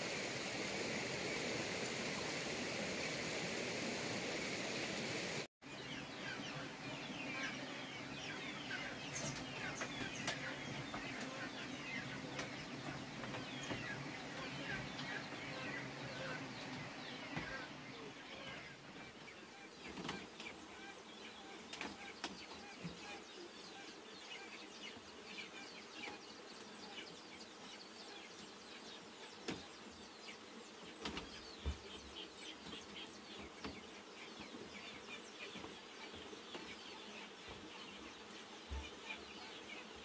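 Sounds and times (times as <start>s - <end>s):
birds chirping: 4.4s - 40.0s
chickens clucking: 5.9s - 20.4s.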